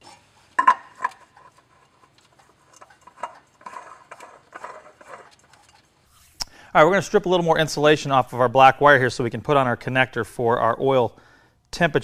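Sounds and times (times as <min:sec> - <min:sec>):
metal canister scraping: 0:00.0 - 0:06.4.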